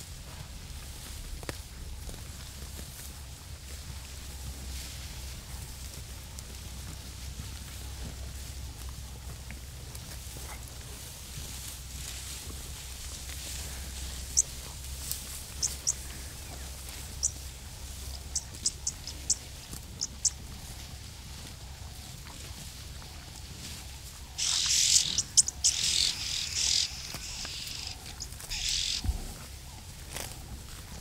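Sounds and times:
birds chirping: 12.8 - 22.3, 22.9 - 30.0
harsh hissing bird chatter: 13.1 - 20.7, 24.3 - 29.1.

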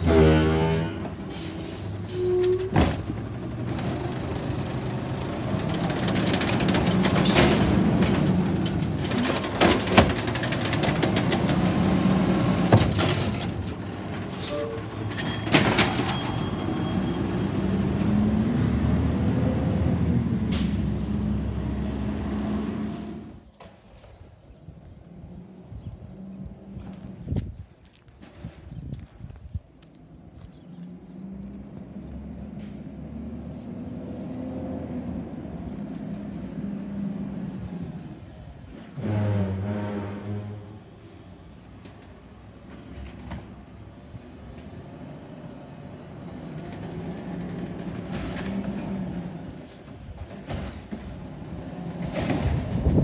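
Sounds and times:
trash cart knocks and bangs: 5.9 - 11.7, 52.0 - 53.0.

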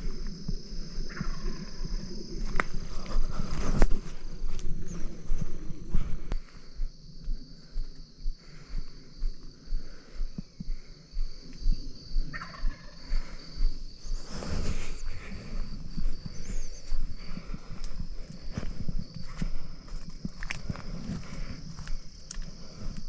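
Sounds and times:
footsteps crunching through dry scrub: 0.0 - 23.0
turkey gobbling: 1.1 - 1.4, 12.3 - 13.0.

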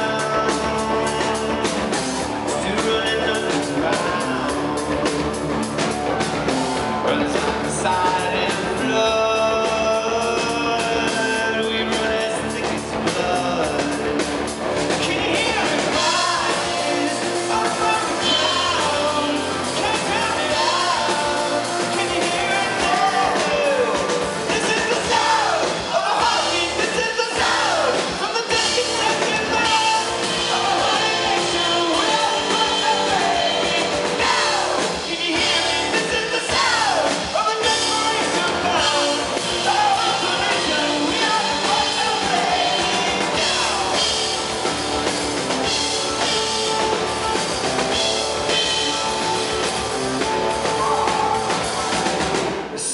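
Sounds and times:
man singing: 0.0 - 5.2, 7.0 - 14.3, 14.9 - 44.4
live rock band: 0.0 - 52.9.

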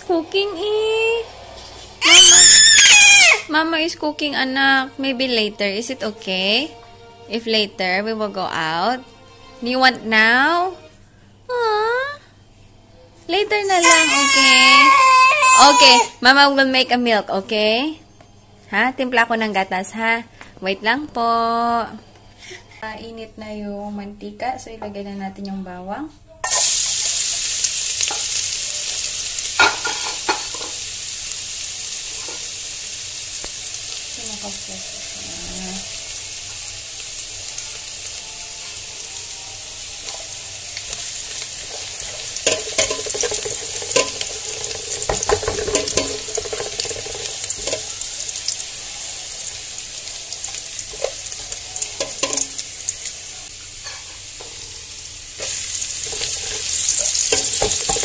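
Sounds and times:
garlic sizzling in oil: 0.0 - 6.6, 26.4 - 58.0
spoon scraping metal pot: 42.0 - 47.9, 55.4 - 58.0.

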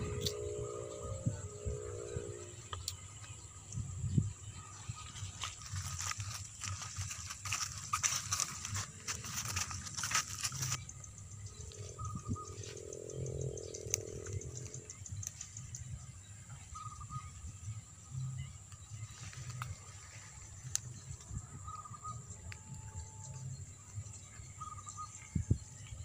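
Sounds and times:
high-pitched hum: 0.0 - 26.0
handling rustling: 5.0 - 10.8.

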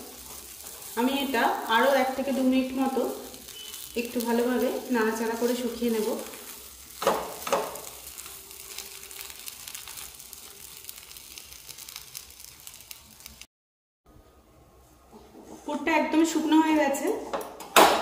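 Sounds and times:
paste sizzling in a pan: 0.0 - 13.5
spatula scraping a pan: 5.8 - 13.2.

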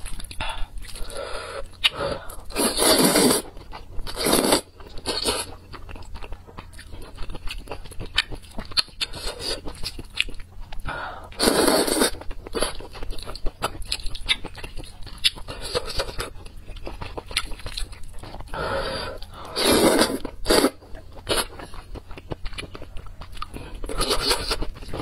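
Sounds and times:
wet chewing with mouth clicks: 0.0 - 25.0
noodles slurped: 0.9 - 5.5, 11.3 - 12.7, 18.2 - 21.8.

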